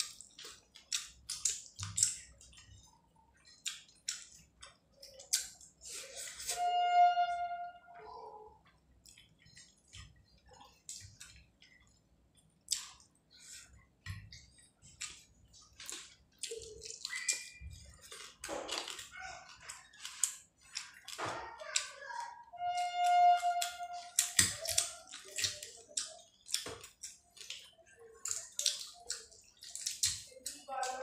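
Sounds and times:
chewing and mouth smacking: 0.0 - 6.5, 8.6 - 22.0, 23.6 - 31.0
high-pitched tone: 6.5 - 8.2, 22.6 - 24.1.

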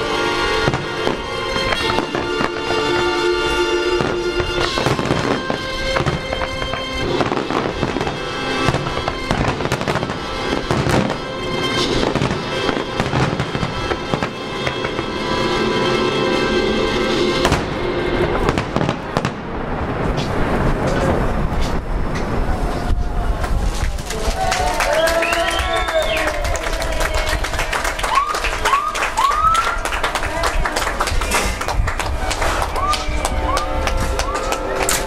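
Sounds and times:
music with long held notes: 0.0 - 19.3
fireworks bangs and crackling: 0.0 - 35.0.

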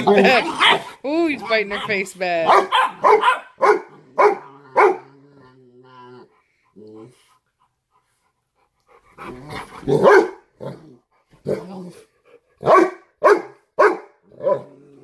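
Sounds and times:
dogs barking: 1.8 - 5.1, 9.9 - 10.5, 12.6 - 14.7.

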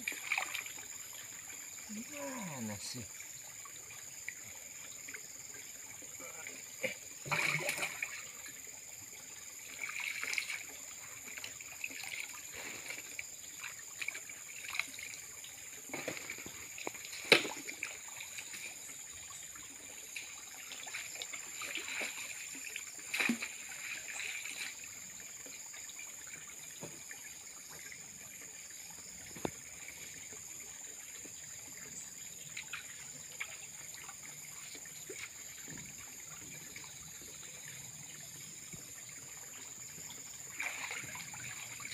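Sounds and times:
water sloshing and splashing: 0.0 - 3.0, 6.2 - 8.8, 9.6 - 25.6, 32.4 - 41.9.

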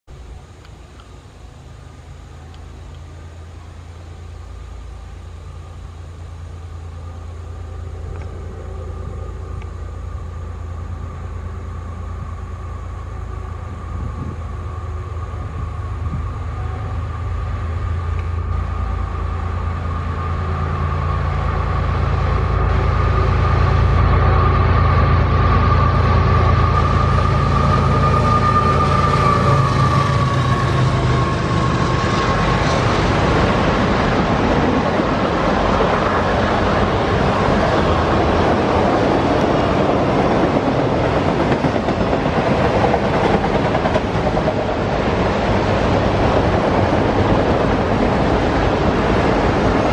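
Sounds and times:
diesel locomotive engine rumble: 0.0 - 49.9
high whine: 0.1 - 49.9.

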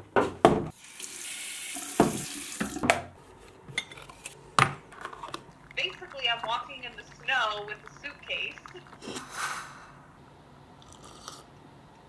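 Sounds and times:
water running from a faucet: 0.8 - 2.8, 5.3 - 9.1
ceramic mug set into coffee maker: 3.8 - 5.4.

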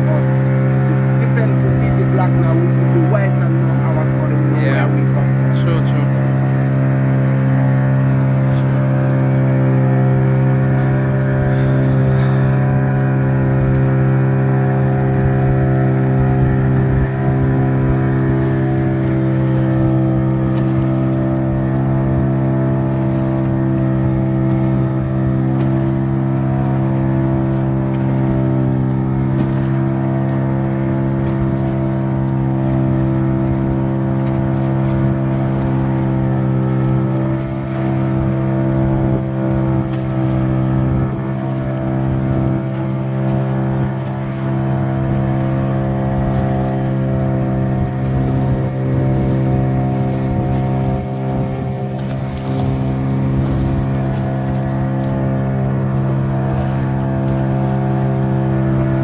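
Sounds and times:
outboard motor droning: 0.0 - 59.0
wind buffeting microphone: 4.4 - 59.0.

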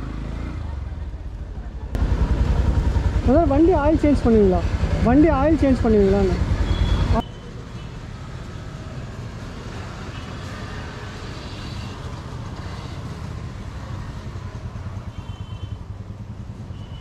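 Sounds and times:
vehicle engine rumbling: 0.0 - 7.2.

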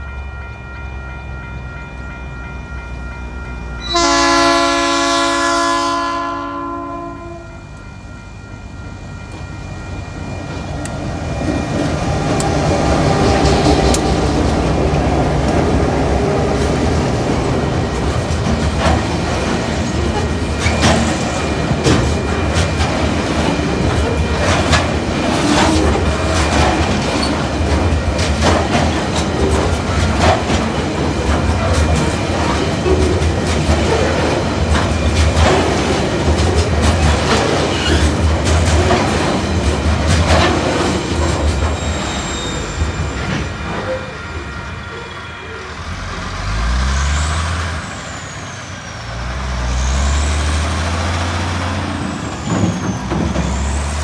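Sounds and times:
train wagons rumbling over rail joints: 9.2 - 54.0
faint wheel squeal: 41.7 - 46.1, 46.8 - 50.4, 52.2 - 54.0
heavy truck engine shifting gears: 45.8 - 54.0.

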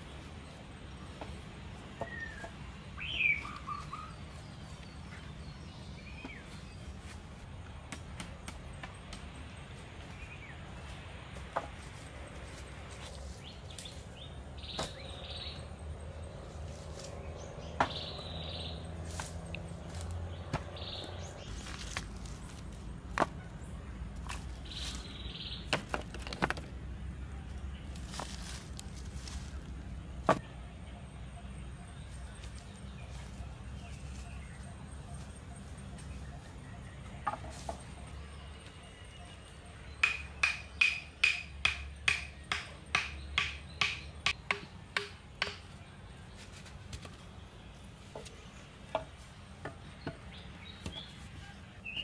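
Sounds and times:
birds chirping: 0.0 - 52.0
wooden poles and stones knocking: 11.4 - 11.8, 20.4 - 23.4, 25.6 - 26.9, 30.2 - 30.4, 37.2 - 37.9, 40.0 - 45.7, 48.1 - 51.1.

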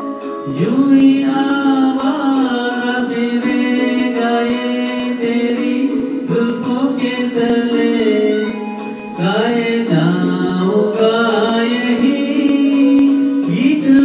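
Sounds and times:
song melody with instrumental accompaniment: 0.0 - 14.0.

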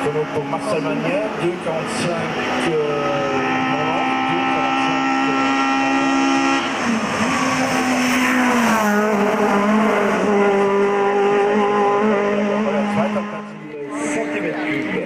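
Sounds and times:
race car engine at high revs: 0.0 - 15.0.

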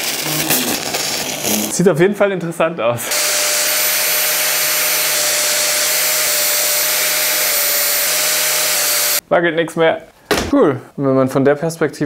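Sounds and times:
angle grinder grinding steel: 3.0 - 9.2.

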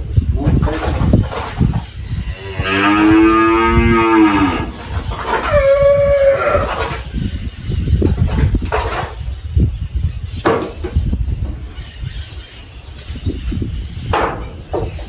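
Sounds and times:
cattle mooing: 2.5 - 6.8.

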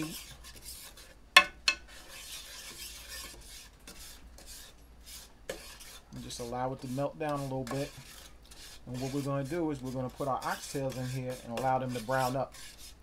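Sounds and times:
wooden spatula scraping pan: 0.0 - 13.0
sharp knocks against pan: 1.4 - 1.8.

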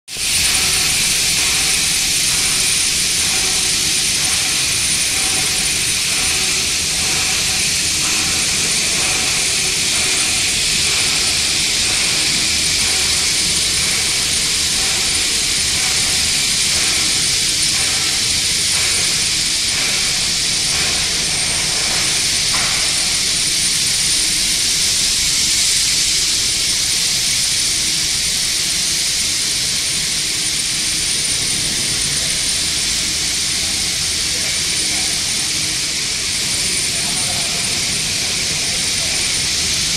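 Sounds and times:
thin high whine: 0.1 - 25.3
loud machinery hiss: 0.1 - 39.9
faint machine hums: 0.2 - 39.9.

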